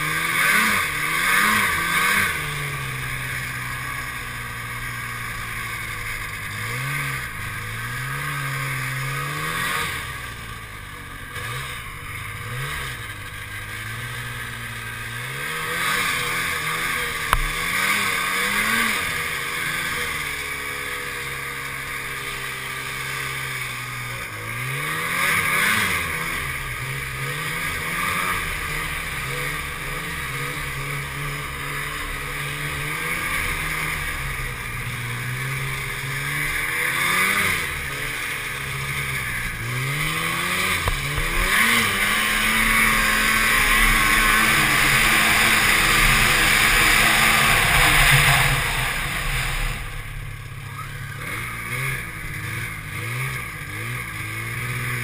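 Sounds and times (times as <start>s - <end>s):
snowmobile engine revving: 0.0s - 55.0s
rushing hiss: 42.3s - 50.4s.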